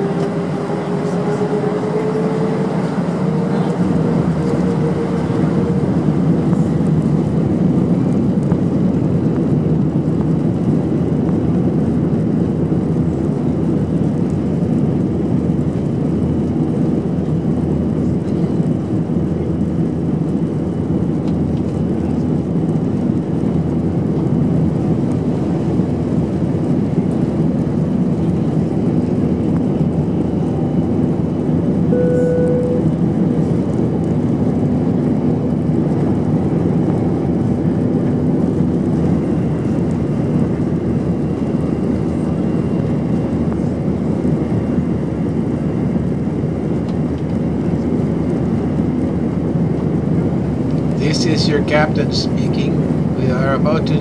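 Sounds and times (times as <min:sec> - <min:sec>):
jet engines spooling up: 0:00.0 - 0:07.9
runway noise: 0:00.0 - 0:09.5.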